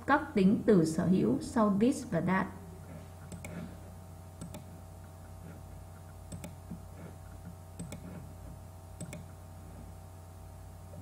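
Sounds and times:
low electrical hum: 0:00.0 - 0:11.0
computer mouse clicking: 0:03.2 - 0:03.7, 0:04.4 - 0:09.4.

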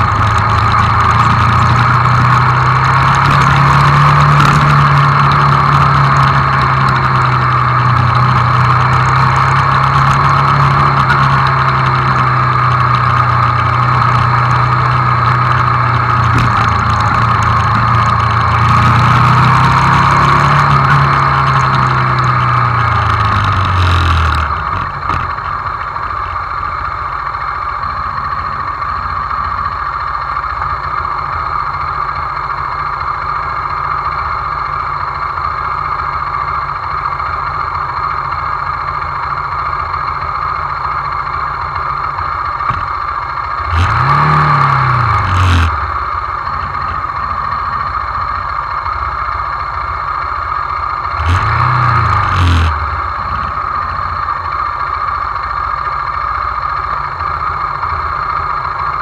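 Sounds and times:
motorcycle throttle blips: 0:00.0 - 0:26.4
motorcycle engine idling: 0:00.0 - 0:43.8, 0:44.8 - 0:51.2, 0:52.7 - 0:59.0.

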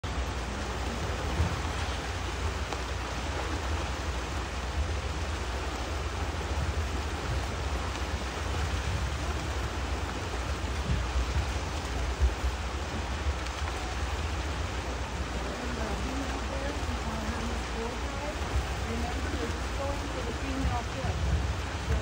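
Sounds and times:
heavy low rumble: 0:00.0 - 0:22.0
water rushing over rocks: 0:00.0 - 0:22.0.

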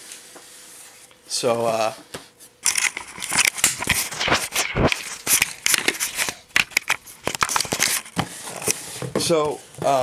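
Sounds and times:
camera handling noise: 0:02.6 - 0:08.8.

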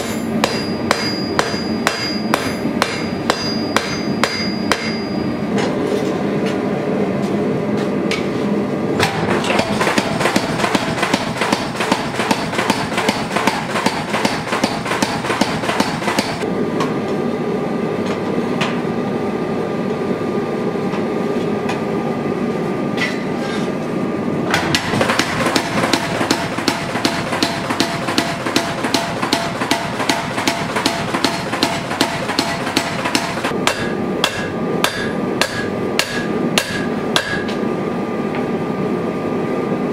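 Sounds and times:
hammer striking blade on anvil: 0:00.0 - 0:05.3, 0:09.0 - 0:16.4, 0:24.6 - 0:37.6
forge running noise: 0:00.0 - 0:39.9.

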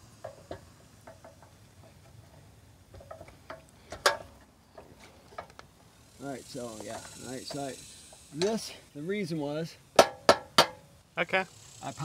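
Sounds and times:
metal pipe clicking and tapping: 0:00.2 - 0:02.0, 0:10.0 - 0:10.8.

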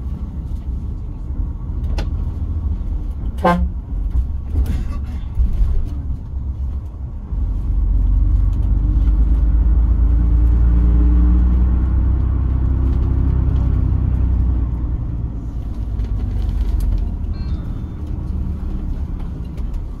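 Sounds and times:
bus engine and road noise: 0:00.0 - 0:20.0.

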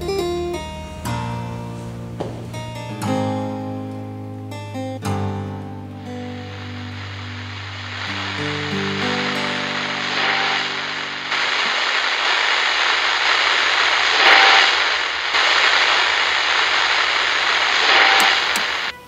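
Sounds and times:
loud steady rushing noise: 0:06.0 - 0:18.9.

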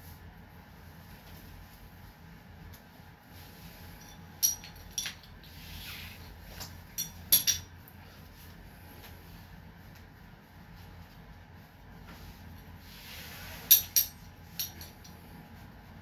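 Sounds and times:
metallic clinks and knocks: 0:04.0 - 0:05.3, 0:06.9 - 0:07.7, 0:13.7 - 0:15.2
soft rustle: 0:08.0 - 0:13.7.

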